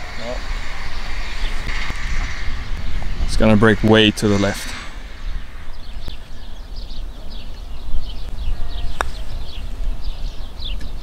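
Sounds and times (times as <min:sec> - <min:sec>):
low steady rumble: 0:00.0 - 0:08.2
birds chirping: 0:00.0 - 0:11.0.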